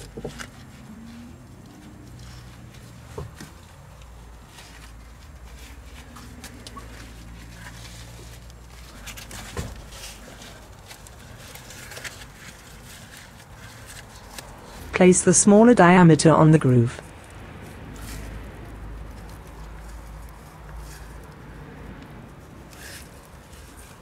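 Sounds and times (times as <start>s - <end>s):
rubber rubbing and light clicks: 0.0s - 14.9s.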